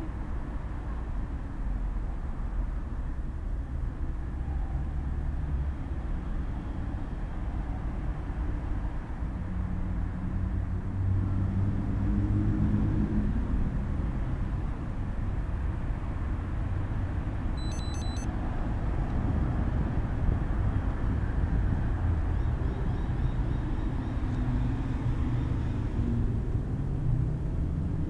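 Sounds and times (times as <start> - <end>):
road traffic passing: 0.0 - 28.0
vehicle engine drone: 9.4 - 28.0
high ringing strokes: 17.6 - 18.3.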